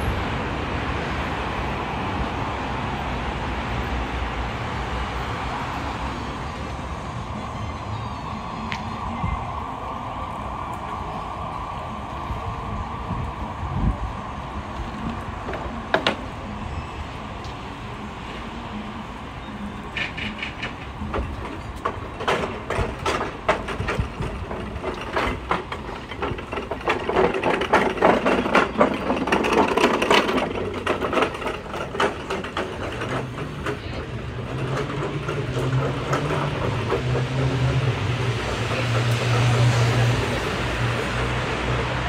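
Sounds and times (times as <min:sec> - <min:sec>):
vehicle engine humming: 0:00.0 - 0:42.0
clattering knocks: 0:19.9 - 0:40.9.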